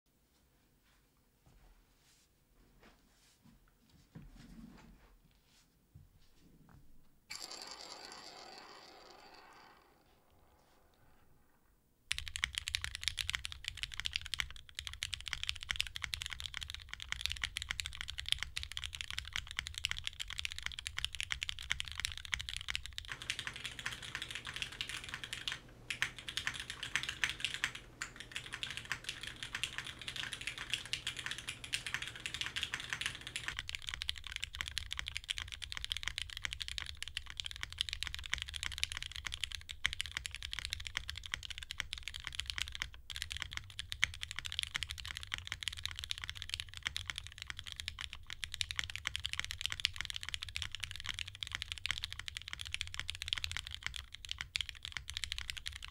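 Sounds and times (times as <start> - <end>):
fast mechanical keyboard typing: 7.3 - 9.6, 12.1 - 55.9.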